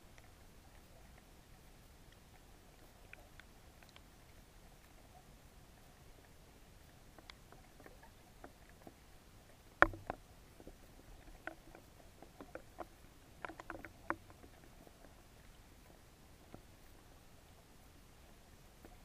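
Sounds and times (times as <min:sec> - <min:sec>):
underwater clicks and knocks: 0:09.8 - 0:15.2.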